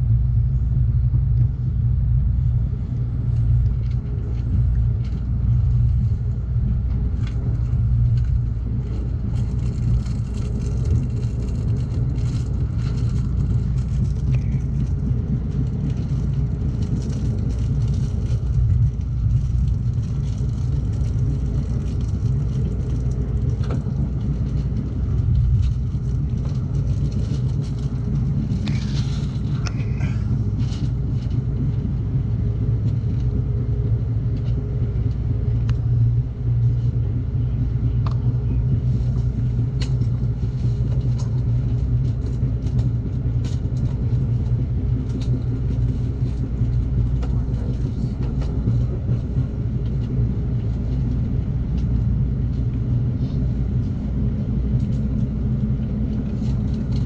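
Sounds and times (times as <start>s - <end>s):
passenger train rumble: 0.0s - 57.0s.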